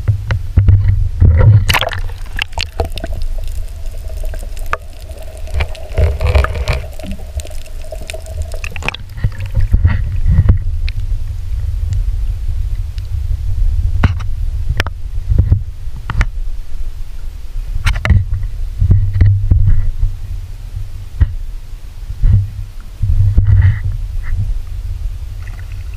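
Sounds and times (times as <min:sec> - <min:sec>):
water rumbling and sloshing: 0:00.0 - 0:15.6, 0:25.3 - 0:25.9
faint steady hum: 0:00.0 - 0:25.9.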